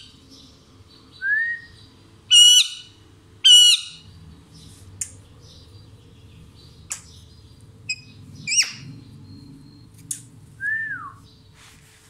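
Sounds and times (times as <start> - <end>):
parakeet warbling squawk: 2.3 - 4.0
parakeet chirps: 7.9 - 9.9.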